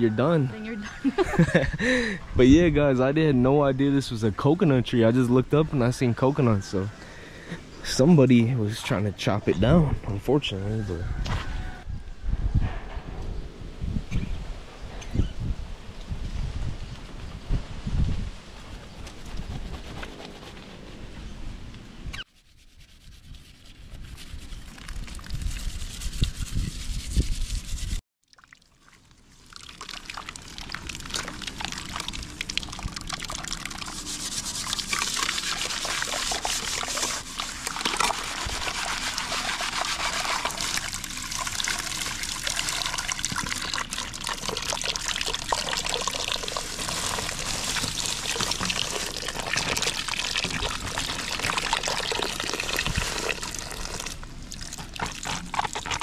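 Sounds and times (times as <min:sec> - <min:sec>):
water running and splashing: 0:28.3 - 0:56.0.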